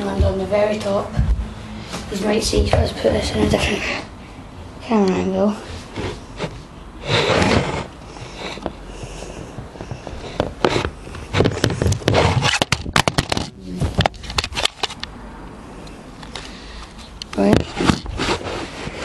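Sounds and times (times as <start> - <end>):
camera handling rustling: 10.0 - 15.1.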